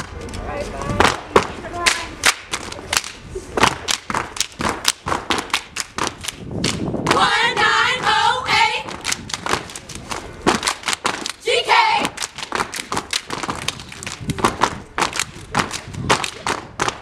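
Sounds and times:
group clapping and stomping: 1.0s - 17.0s.

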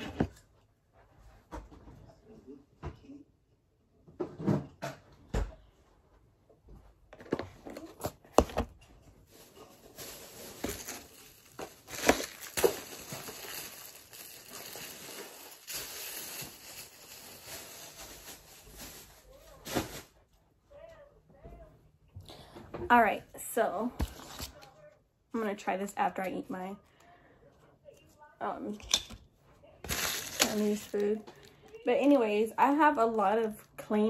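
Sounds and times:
plastic packaging crinkling: 7.7s - 20.1s, 29.9s - 31.8s.

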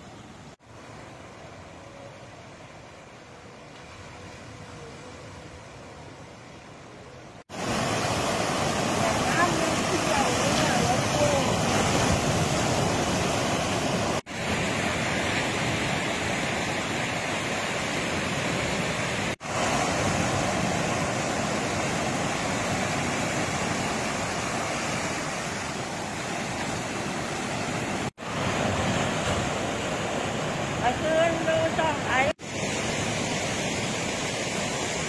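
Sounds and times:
sea surf breaking on shore: 7.4s - 35.0s.

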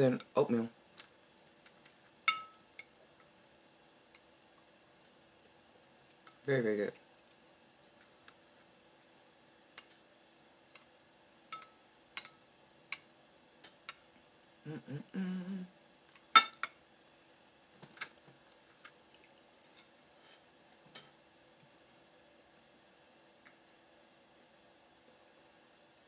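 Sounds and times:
metal spoon clinking on glass bowl: 2.3s - 2.6s
person humming: 14.6s - 15.8s.

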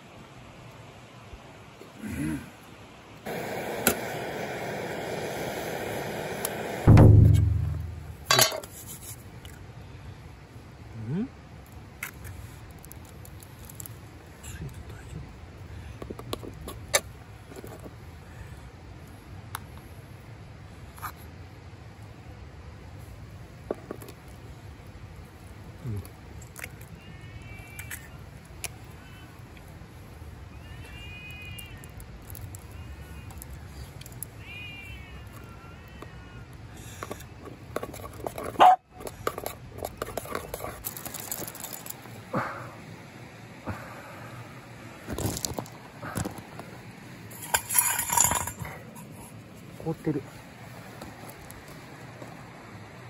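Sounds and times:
stove burner hissing: 3.2s - 8.8s, 46.6s - 49.2s
deep drum-like boom: 6.9s - 8.2s.

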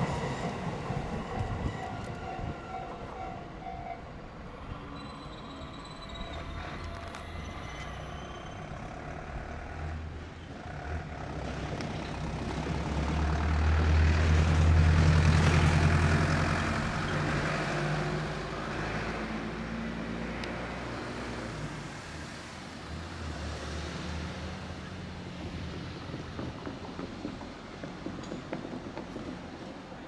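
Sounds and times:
electric train humming: 0.0s - 19.0s
train rumble: 0.0s - 30.0s.

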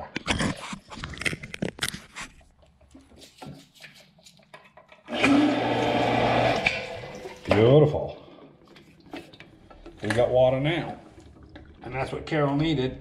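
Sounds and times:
well pump humming: 5.1s - 8.1s.

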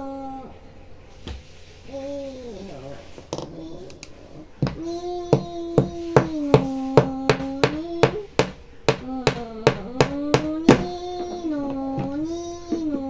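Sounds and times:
sharp knocks: 4.6s - 12.3s.

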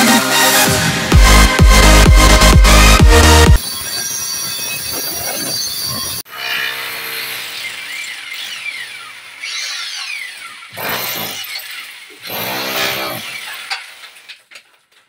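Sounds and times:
rotary hammer chiselling masonry: 7.0s - 14.4s.

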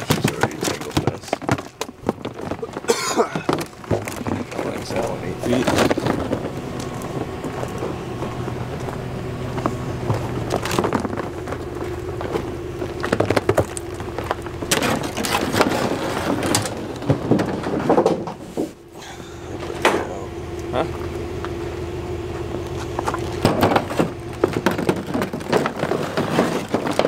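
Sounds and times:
plastic decoys knocking and rattling: 0.0s - 6.9s, 10.4s - 18.4s, 23.0s - 27.0s
steady low hum: 0.0s - 27.0s.

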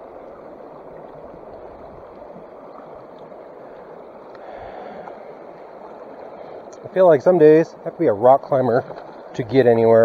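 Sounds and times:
creek water running over rocks: 0.0s - 10.0s.

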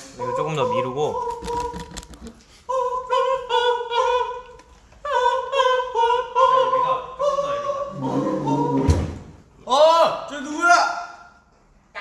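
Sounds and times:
person singing high notes: 2.7s - 8.9s.

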